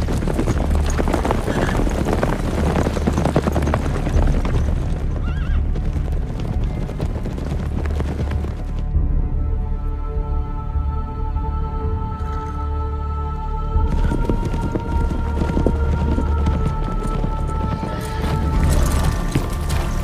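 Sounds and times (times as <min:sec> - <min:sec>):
horse hooves clopping: 0:00.0 - 0:09.0, 0:13.7 - 0:20.0
horse whinnying: 0:01.3 - 0:02.1, 0:05.2 - 0:05.6.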